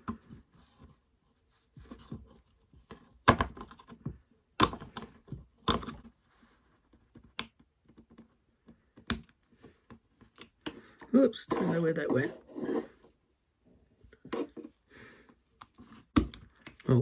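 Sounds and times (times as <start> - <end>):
knife scraping plastic: 9.6 - 13.1.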